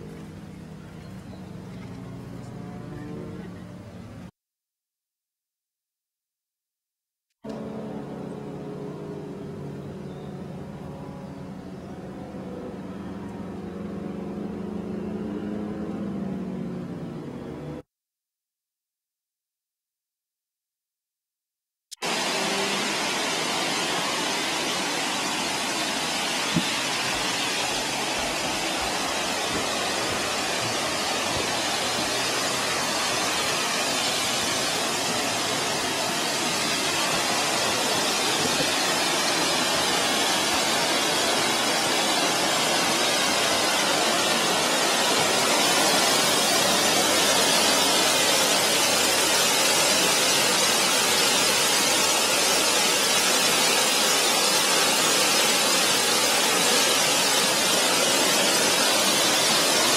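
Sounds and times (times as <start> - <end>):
waterfall rushing: 0.0 - 1.6, 22.0 - 59.9.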